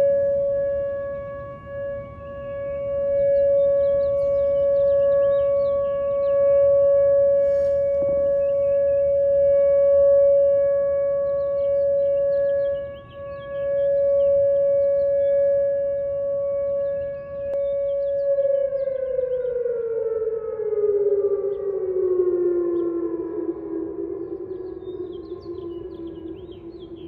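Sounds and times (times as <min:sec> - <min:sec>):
warning siren steady tone: 0:00.0 - 0:27.0
small birds chirping: 0:03.2 - 0:06.8, 0:11.2 - 0:19.6, 0:24.2 - 0:27.0.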